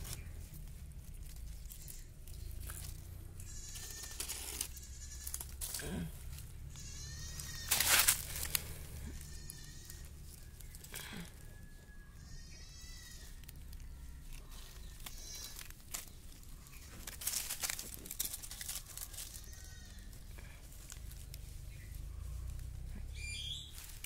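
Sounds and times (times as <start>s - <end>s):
dry leaves crackling underfoot: 0.0s - 24.0s
animal bleating: 1.6s - 2.2s, 3.4s - 10.2s, 11.0s - 15.8s, 18.8s - 20.5s.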